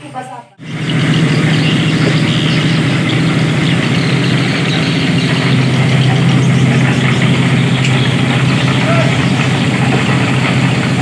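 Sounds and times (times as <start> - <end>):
concrete mixer engine running: 0.0 - 11.0.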